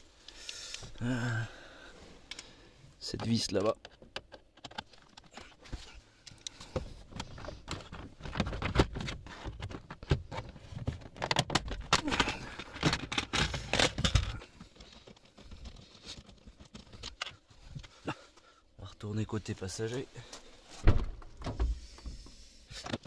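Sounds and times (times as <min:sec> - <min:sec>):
plastic panels clicking and knocking: 0:03.1 - 0:17.9.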